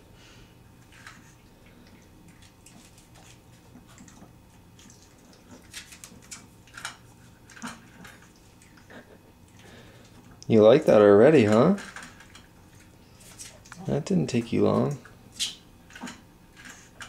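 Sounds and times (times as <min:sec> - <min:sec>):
puppy crunching dry food: 0:00.8 - 0:17.0.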